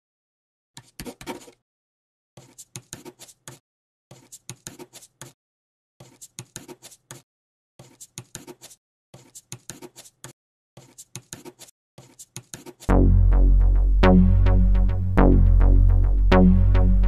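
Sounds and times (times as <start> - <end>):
pen scratching on paper: 0.8 - 1.6, 2.4 - 5.4, 6.0 - 7.2, 7.8 - 12.9.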